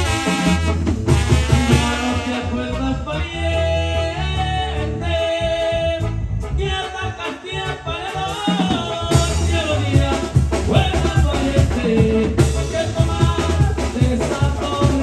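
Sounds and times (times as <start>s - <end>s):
bass drum and cymbal beat: 0.0s - 15.0s
saxophones and trombones melody: 0.0s - 15.0s.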